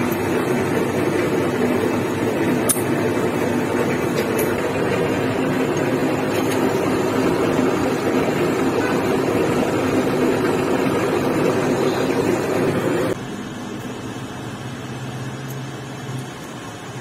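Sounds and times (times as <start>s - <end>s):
lathe running: 0.0s - 13.2s.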